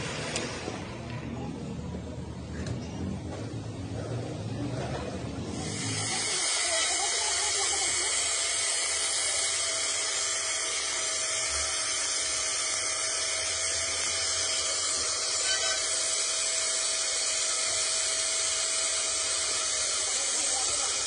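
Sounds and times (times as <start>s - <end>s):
angle grinder grinding steel: 5.5s - 21.0s.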